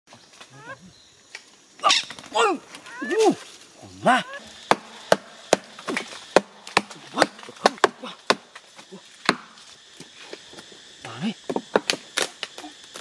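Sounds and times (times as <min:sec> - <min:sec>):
hatchet chopping wood: 0:04.6 - 0:08.6, 0:09.2 - 0:09.6.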